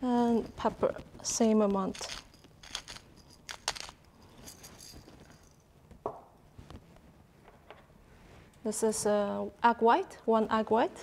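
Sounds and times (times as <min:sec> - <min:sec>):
pepper mill grinding: 0:01.6 - 0:04.9
light clinks: 0:02.0 - 0:05.7.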